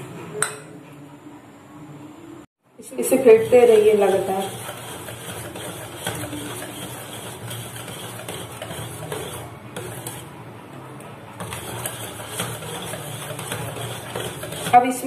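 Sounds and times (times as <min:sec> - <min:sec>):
whisk scraping metal bowl: 0:02.8 - 0:10.4, 0:11.4 - 0:15.0.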